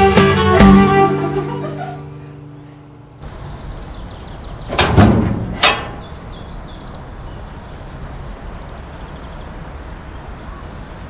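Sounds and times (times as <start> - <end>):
outdoor background noise: 1.8 - 11.0
metal gate grating: 4.6 - 6.3
metallic gate clang: 4.7 - 6.3.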